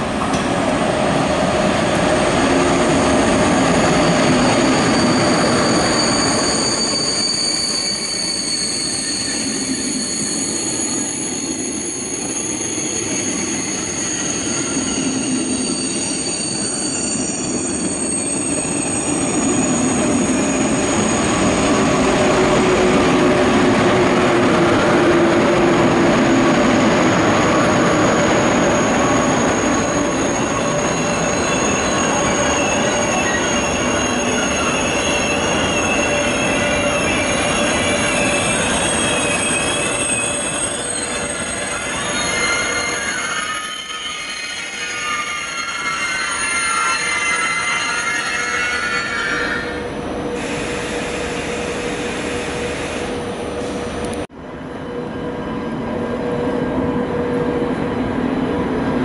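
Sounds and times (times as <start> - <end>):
train wheels squealing: 3.1 - 22.6, 26.7 - 54.0.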